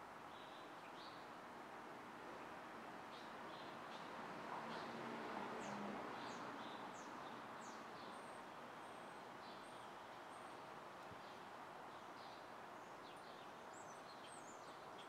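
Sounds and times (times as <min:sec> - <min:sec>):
distant street traffic hum: 0:01.5 - 0:12.7
small birds chirping: 0:11.2 - 0:15.0.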